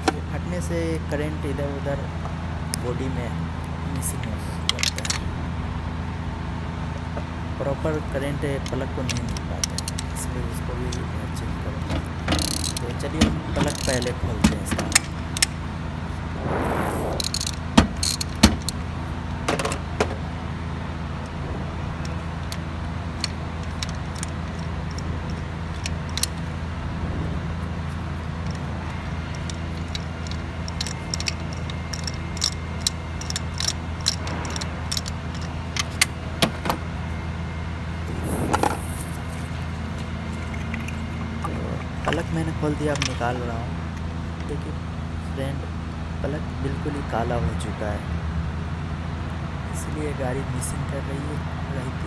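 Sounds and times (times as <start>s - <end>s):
steady low hum: 0.0s - 52.0s
metal tools clinking: 4.7s - 5.2s
ratchet clicking: 12.3s - 12.8s.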